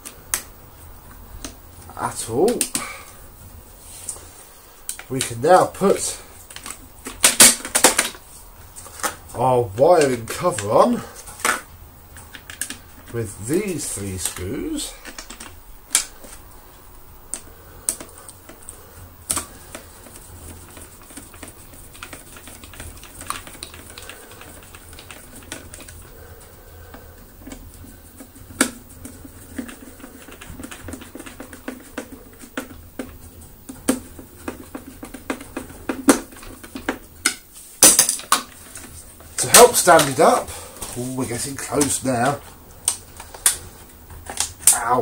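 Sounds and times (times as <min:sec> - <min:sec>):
screwdriver clicking on plastic: 0:17.3 - 0:26.0.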